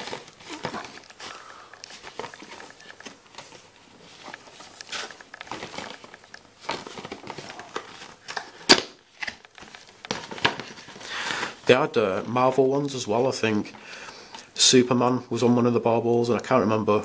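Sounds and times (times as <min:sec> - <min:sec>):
cardboard box rustling and crinkling: 0:00.0 - 0:08.4, 0:09.4 - 0:11.0.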